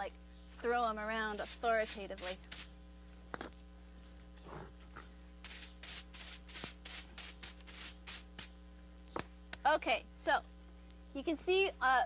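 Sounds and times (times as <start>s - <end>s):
whisk broom brushing brick: 0.6s - 2.7s, 5.4s - 8.5s.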